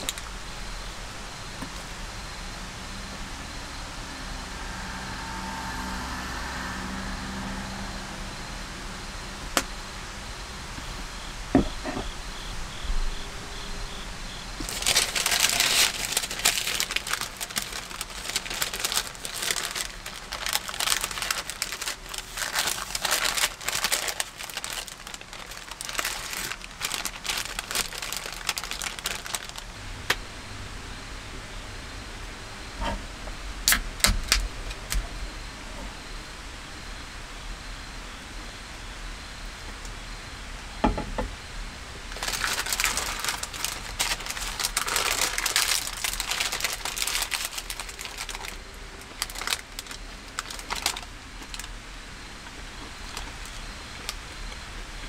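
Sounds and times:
paper crinkling: 0:14.6 - 0:29.7, 0:42.1 - 0:51.7.

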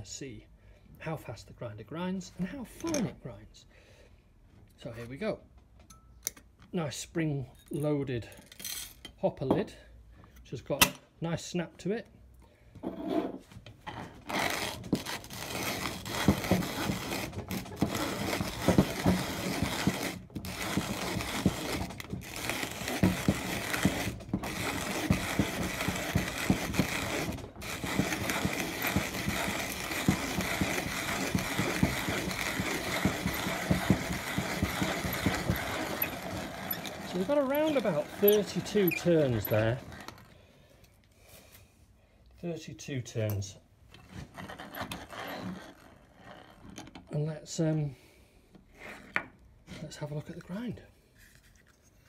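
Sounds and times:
hand-cranked coffee grinder crunching: 0:14.0 - 0:40.3, 0:44.1 - 0:47.2.

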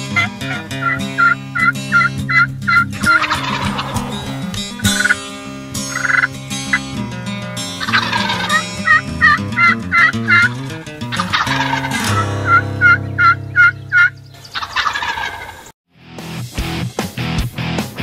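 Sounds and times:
turkeys gobbling: 0:00.1 - 0:06.3, 0:07.8 - 0:10.5, 0:11.1 - 0:15.7
hen turkey yelps: 0:00.2 - 0:05.2, 0:07.8 - 0:10.5, 0:11.2 - 0:15.7.

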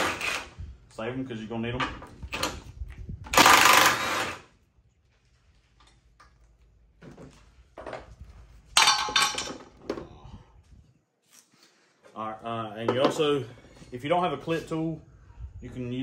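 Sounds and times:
metallic clattering and ringing: 0:08.8 - 0:09.6.

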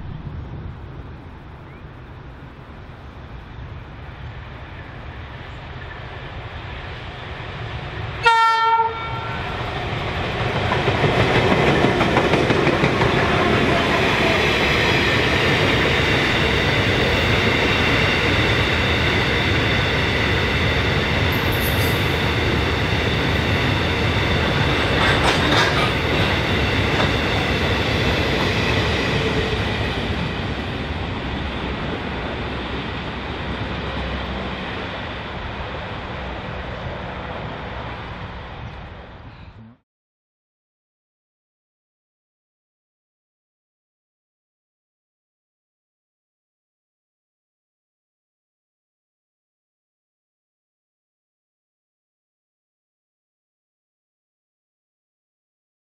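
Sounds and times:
diesel locomotive engines: 0:00.0 - 0:39.7
train horn blast: 0:08.2 - 0:09.6
freight wagons rolling past: 0:09.5 - 0:38.5.

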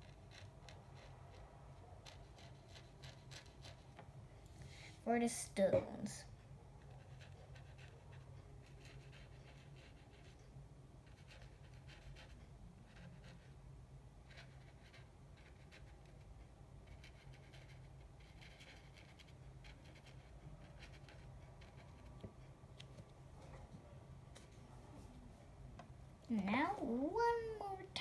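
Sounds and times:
paintbrush scratching on paper: 0:00.0 - 0:04.0, 0:06.8 - 0:13.6, 0:14.2 - 0:22.9
low steady hum: 0:00.0 - 0:28.0.

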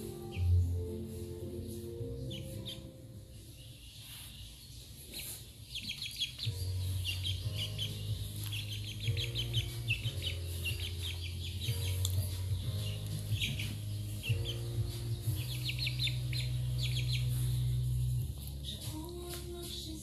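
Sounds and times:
background music with low notes: 0:00.0 - 0:20.0
chicks peeping: 0:00.0 - 0:20.0.

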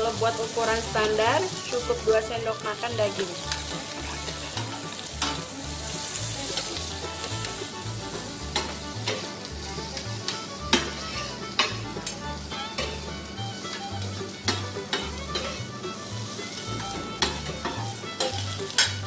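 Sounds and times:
background music: 0:00.0 - 0:19.0
food sizzling on a griddle: 0:00.0 - 0:19.0
metal spatulas scraping: 0:03.5 - 0:09.4, 0:10.7 - 0:13.3, 0:14.4 - 0:19.0.

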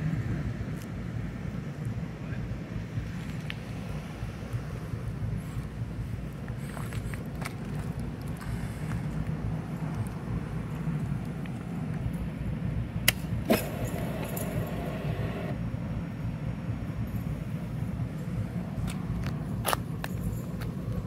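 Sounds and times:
fuel pump humming: 0:13.0 - 0:15.6.

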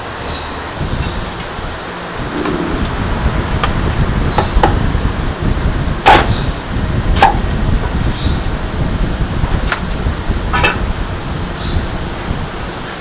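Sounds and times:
low rumble: 0:02.0 - 0:04.4.

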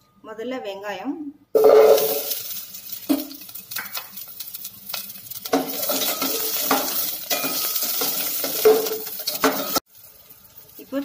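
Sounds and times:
onions sizzling in oil: 0:01.6 - 0:11.0
metal spatula scraping pot: 0:05.0 - 0:09.8.

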